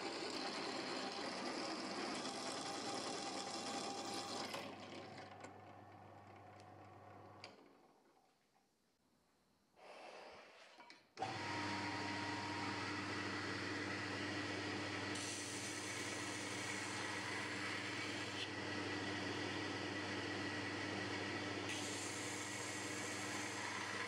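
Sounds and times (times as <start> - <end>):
belt grinder running: 11.2 - 18.6, 19.3 - 24.0
drill press boring steel: 14.8 - 18.5, 21.1 - 24.0.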